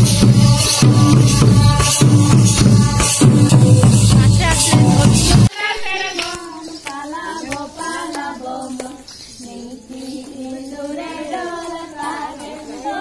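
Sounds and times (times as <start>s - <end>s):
women singing together: 0.0s - 13.0s.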